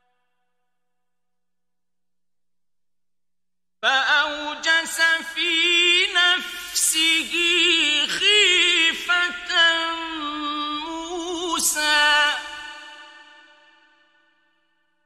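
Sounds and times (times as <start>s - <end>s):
man chanting recitation: 3.9s - 13.3s.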